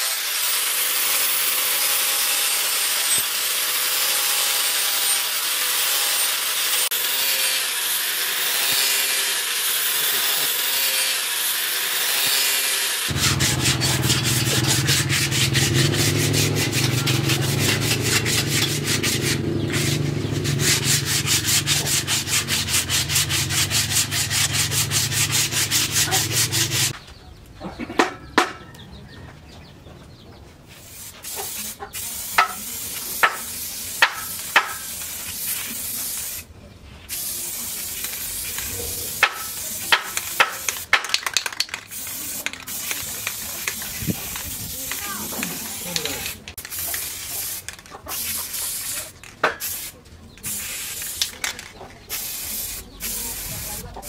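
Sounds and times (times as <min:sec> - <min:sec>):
angle grinder sanding metal: 0:00.0 - 0:27.0, 0:30.8 - 0:36.0, 0:37.4 - 0:49.6
rhythmic rubbing on wood: 0:11.6 - 0:27.0, 0:32.4 - 0:34.9, 0:38.4 - 0:49.6.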